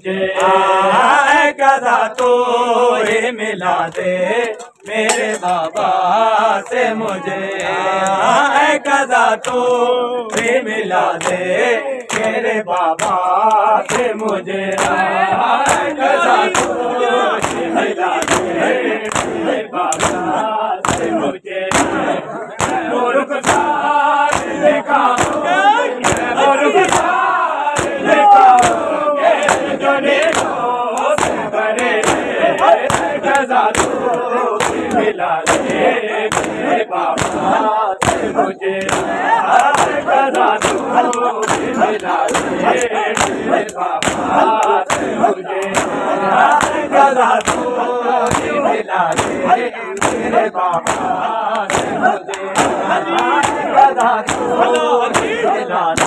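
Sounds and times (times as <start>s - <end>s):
men chanting and shouting: 0.0s - 56.0s
hand slaps on bare chests: 1.8s - 2.4s, 3.9s - 5.9s, 6.6s - 27.2s, 27.8s - 56.0s.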